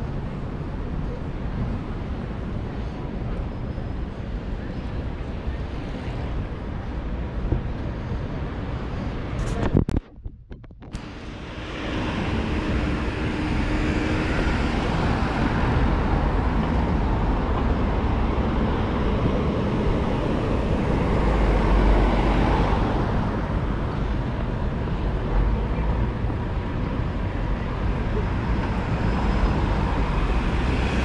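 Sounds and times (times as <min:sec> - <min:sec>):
road traffic passing: 0:00.0 - 0:10.0, 0:10.9 - 0:31.0
vehicle low rumble: 0:00.0 - 0:31.0.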